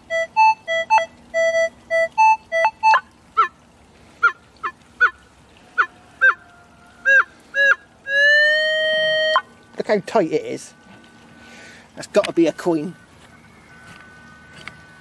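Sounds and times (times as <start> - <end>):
metal detector steady tone: 8.4 - 15.0.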